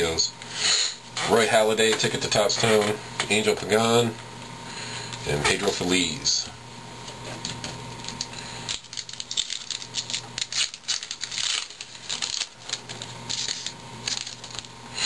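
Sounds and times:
foil wrapper crinkling: 0:07.4 - 0:15.0.

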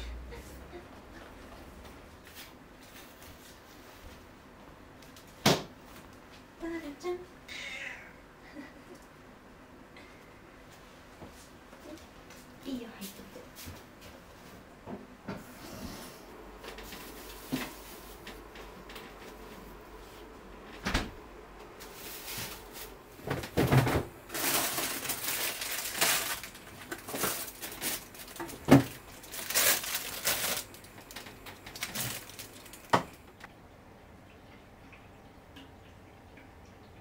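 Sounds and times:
rustling: 0:21.8 - 0:32.9.

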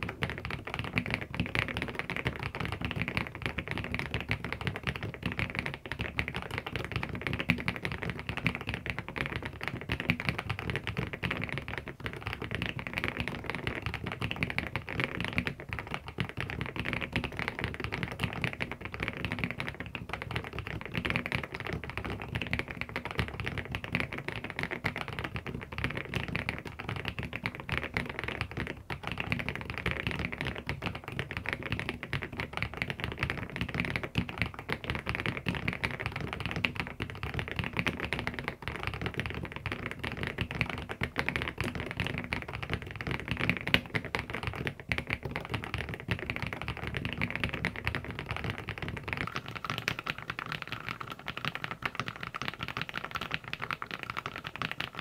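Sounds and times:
mechanical keyboard typing: 0:46.4 - 0:55.0.

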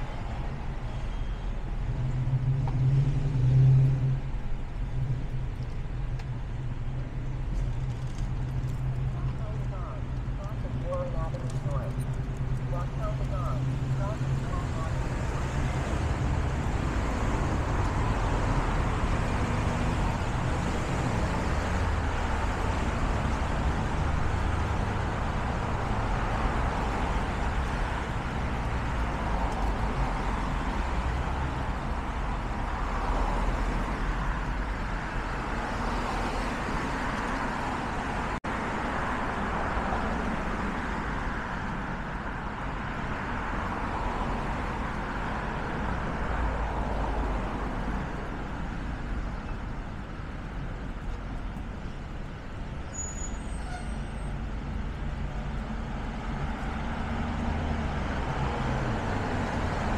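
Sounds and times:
road traffic: 0:00.0 - 0:59.9.

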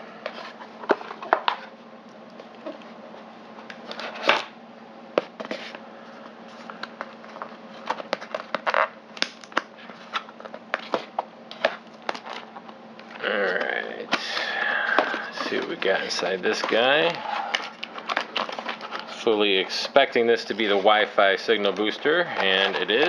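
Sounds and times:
hands handling cardboard packaging: 0:06.5 - 0:19.2, 0:20.5 - 0:23.0.

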